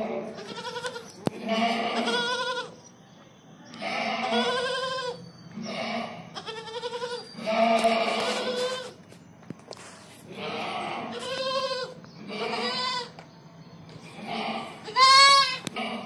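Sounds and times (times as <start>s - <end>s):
goat kid bleating: 0.3s - 2.8s, 3.8s - 5.2s, 6.3s - 9.0s, 10.3s - 13.2s, 14.7s - 15.8s.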